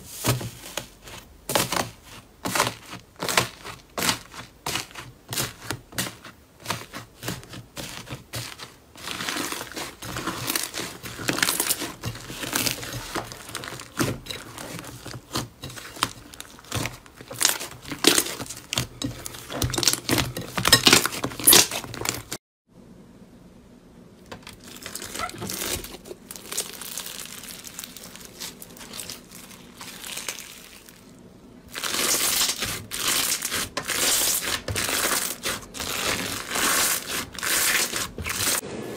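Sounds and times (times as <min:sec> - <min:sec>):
hands squishing slime: 0:00.0 - 0:22.4, 0:24.6 - 0:31.1, 0:31.7 - 0:38.6
wet crackling and popping: 0:02.6 - 0:22.4, 0:24.2 - 0:38.6.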